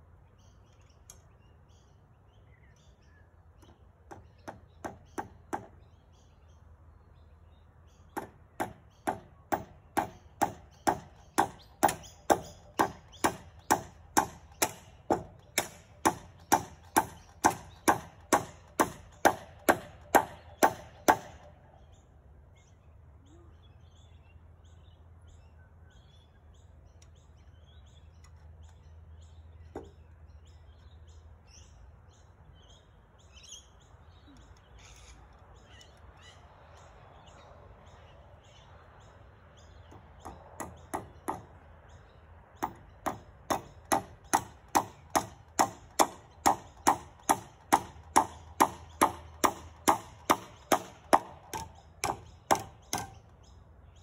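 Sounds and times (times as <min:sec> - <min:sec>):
hammer striking nail: 0:04.1 - 0:05.8, 0:08.2 - 0:21.5, 0:39.9 - 0:41.5, 0:42.6 - 0:53.2.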